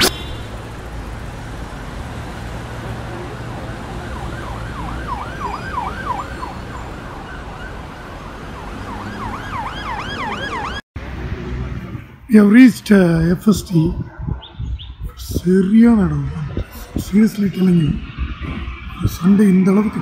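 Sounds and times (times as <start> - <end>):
siren yelping: 3.2 - 10.8
steady low rumble: 11.0 - 20.0.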